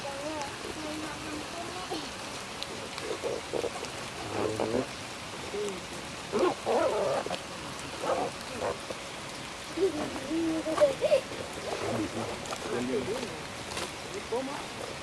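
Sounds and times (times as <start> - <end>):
background hiss: 0.0 - 15.0
low voices talking: 9.6 - 14.8.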